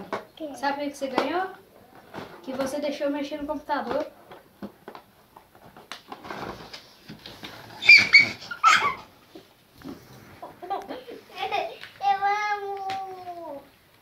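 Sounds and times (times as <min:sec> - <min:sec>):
high-pitched cries: 0:07.8 - 0:09.1.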